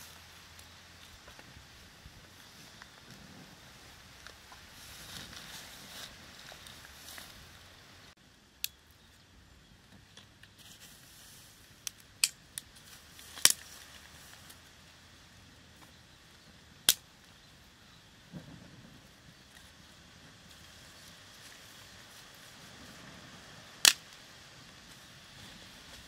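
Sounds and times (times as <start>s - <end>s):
twig fire crackling: 0.0s - 9.2s, 9.8s - 26.0s
sharp pops of fire: 11.8s - 13.7s, 23.8s - 24.3s.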